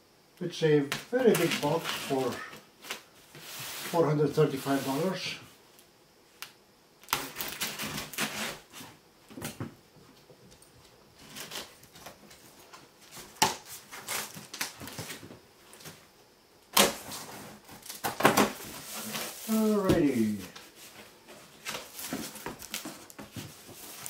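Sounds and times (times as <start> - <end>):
cardboard box tape scraping: 1.2 - 2.5, 7.1 - 8.9.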